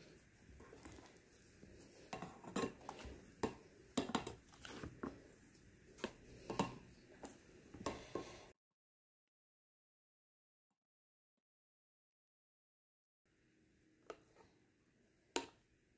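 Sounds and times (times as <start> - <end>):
spatula scraping metal saucepan: 2.0 - 5.2.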